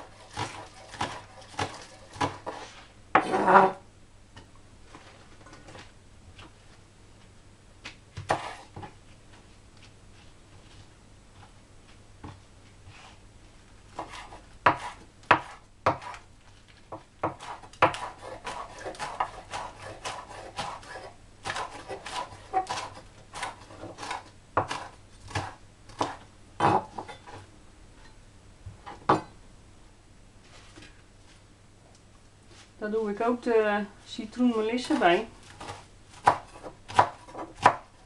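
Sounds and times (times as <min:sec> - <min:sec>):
knife chopping on wooden board: 0:00.2 - 0:02.6, 0:08.2 - 0:08.9, 0:14.0 - 0:16.2, 0:16.9 - 0:27.2, 0:35.6 - 0:37.9.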